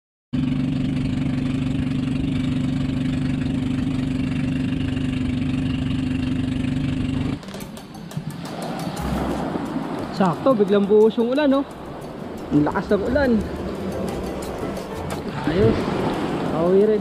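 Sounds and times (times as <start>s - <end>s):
boat engine running: 0.4s - 17.0s.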